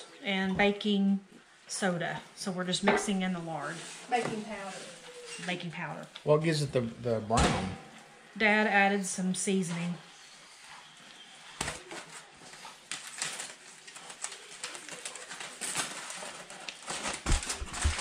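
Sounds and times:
dough squishing and slapping: 16.7s - 18.0s.

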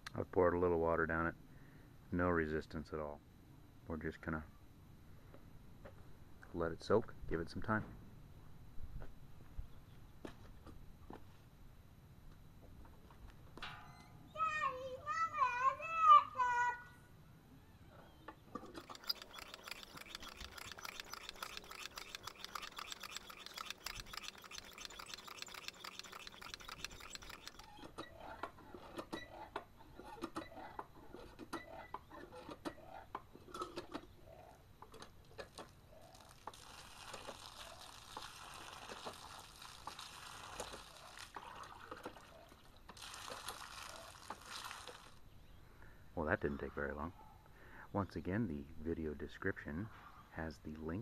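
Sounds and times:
hand pump clicking and rattling: 18.6s - 28.0s.

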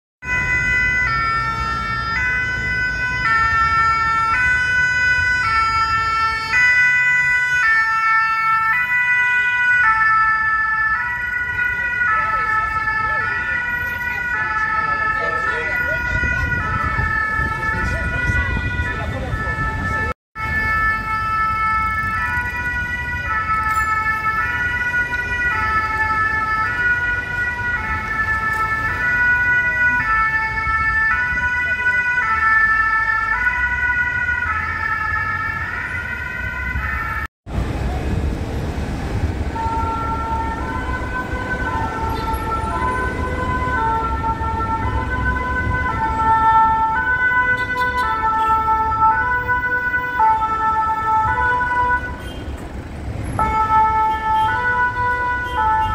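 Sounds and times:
rumble of engines and traffic: 0.2s - 55.9s
two-tone fire engine sirens: 0.2s - 55.9s.

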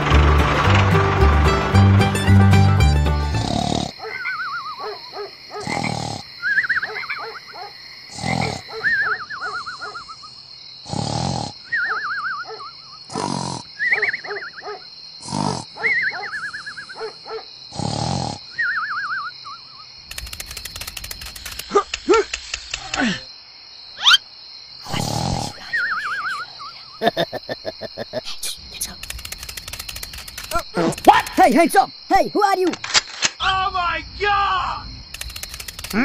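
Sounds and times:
cartoon rasping snore: 3.3s - 4.0s, 5.6s - 6.3s, 8.1s - 8.8s, 10.8s - 11.7s, 13.1s - 13.7s, 15.2s - 15.8s, 17.7s - 18.5s, 24.8s - 26.5s
wavering falling whistle: 18.6s - 19.6s.

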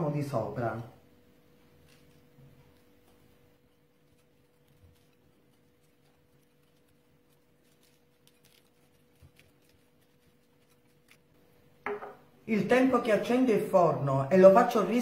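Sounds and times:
faint steady hum: 0.0s - 15.0s
seeds ticking onto dough: 1.2s - 11.4s.

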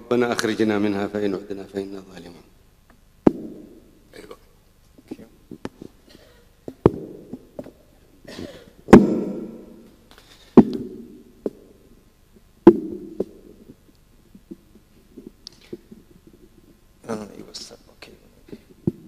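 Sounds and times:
microphone knocks: 3.2s - 3.7s, 6.7s - 7.8s, 8.9s - 9.7s, 10.6s - 11.6s, 12.6s - 13.7s.

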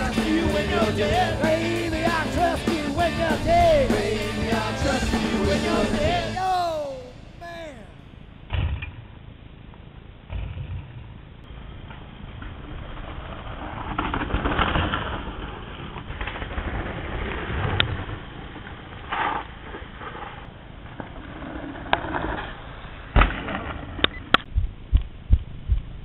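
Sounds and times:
bike rattling over dirt trail: 10.6s - 24.0s.

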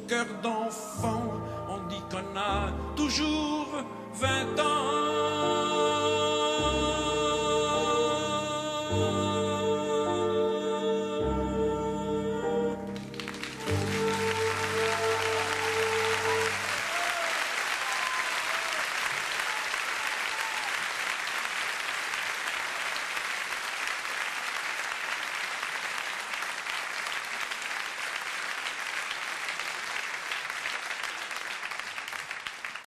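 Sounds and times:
audience applauding: 12.9s - 32.9s.

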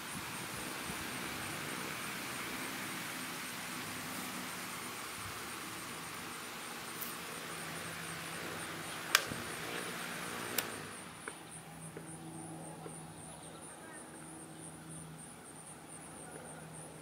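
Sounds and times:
table fan air rushing: 0.0s - 12.0s
fan switch clicks: 9.1s - 9.4s, 10.5s - 10.8s.

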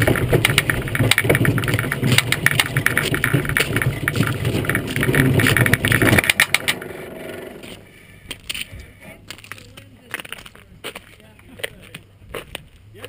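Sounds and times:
iceboat runners rumbling on ice: 0.0s - 7.9s.

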